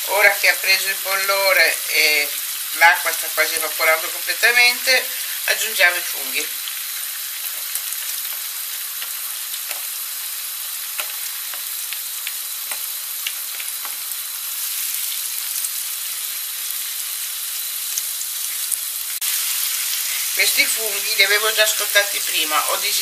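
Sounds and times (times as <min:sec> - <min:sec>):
food sizzling in frying pan: 0:00.0 - 0:23.0
spatula stirring in pan: 0:07.1 - 0:10.1, 0:10.8 - 0:14.2.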